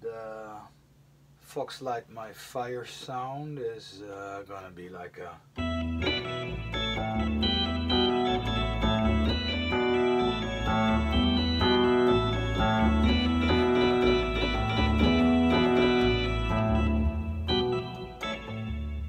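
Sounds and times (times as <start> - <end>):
buzzy combo organ chords: 5.6 - 19.0
electric piano bass line: 5.6 - 19.0.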